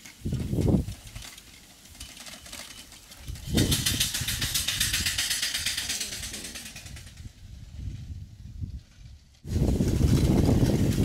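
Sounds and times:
steam engine chuffing: 0:00.0 - 0:07.7.

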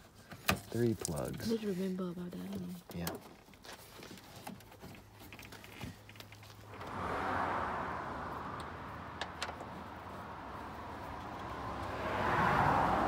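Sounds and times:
cars passing: 0:06.1 - 0:13.0.

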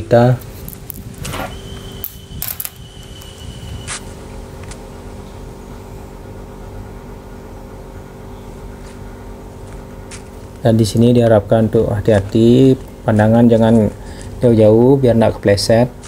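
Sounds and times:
faint steady hum: 0:00.0 - 0:16.0
footsteps on forest path: 0:08.8 - 0:10.7.

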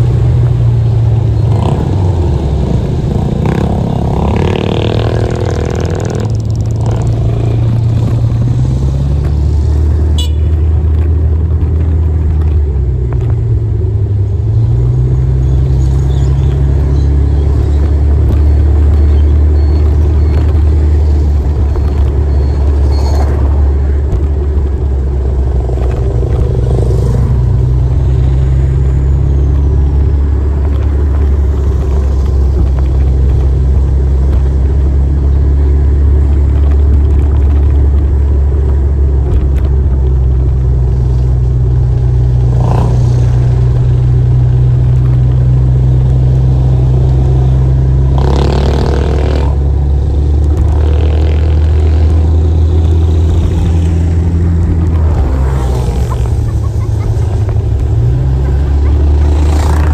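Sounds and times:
motorcycle engine rumble: 0:00.0 - 0:59.9
vehicles passing: 0:00.0 - 0:59.9.

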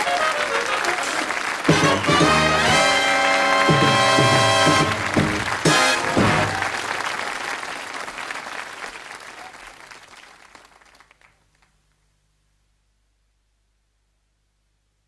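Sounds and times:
brass theme music: 0:00.0 - 0:07.1
studio audience applause: 0:00.0 - 0:11.7.

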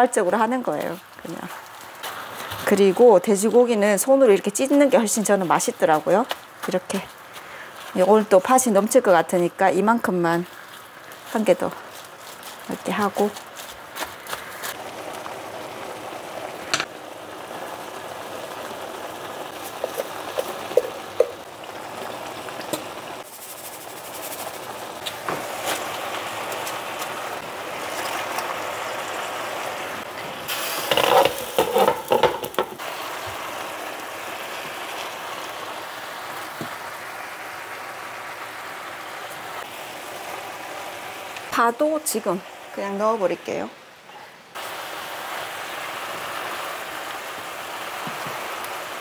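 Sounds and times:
pork sizzling in a pan: 0:00.0 - 0:43.6, 0:44.6 - 0:49.0
spatula scraping and clattering on pan: 0:30.6 - 0:32.8.

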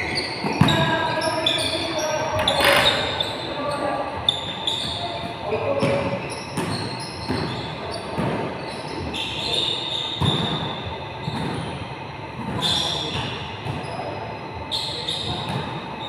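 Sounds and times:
basketball bouncing on gym court: 0:00.0 - 0:01.7, 0:04.3 - 0:11.8, 0:15.2 - 0:16.0.

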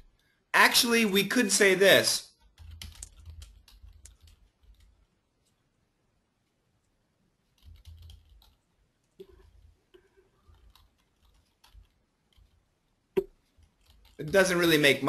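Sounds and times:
computer keyboard typing: 0:02.4 - 0:05.1, 0:07.4 - 0:15.0.

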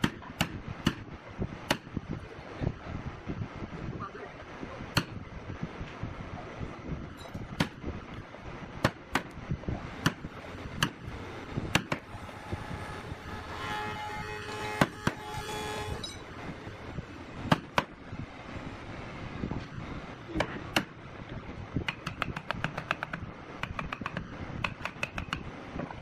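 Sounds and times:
steady humming tone: 0:00.0 - 0:26.0
mallet striking chisel: 0:01.7 - 0:01.9, 0:11.7 - 0:12.0, 0:21.8 - 0:25.4.

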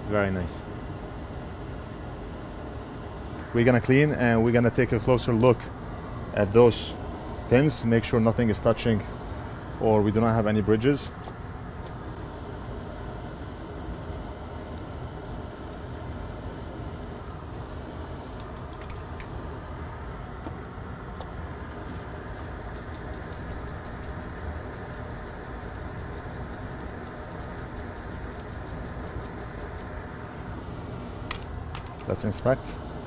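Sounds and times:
scrubbing on circuit board: 0:22.6 - 0:29.9.

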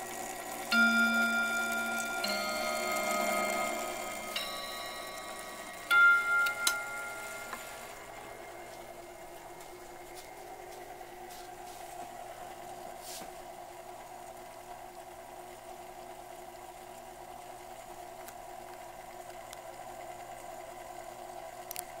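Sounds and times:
steady hum: 0:00.0 - 0:15.7.

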